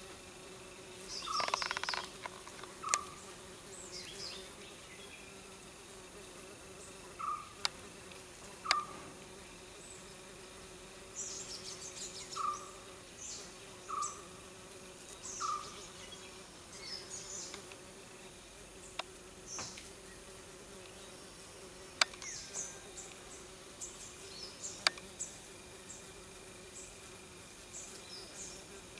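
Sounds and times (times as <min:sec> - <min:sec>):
insect drone: 0:00.0 - 0:28.9
sharp clicks: 0:01.3 - 0:03.1, 0:22.0 - 0:22.3, 0:24.8 - 0:25.1.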